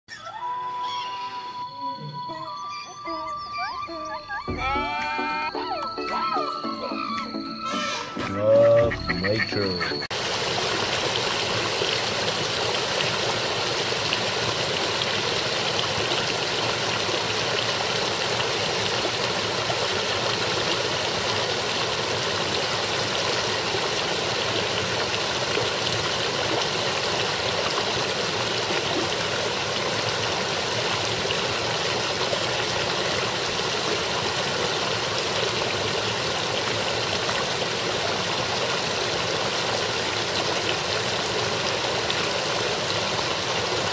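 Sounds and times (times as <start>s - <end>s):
brook babbling over rocks: 9.6s - 43.9s.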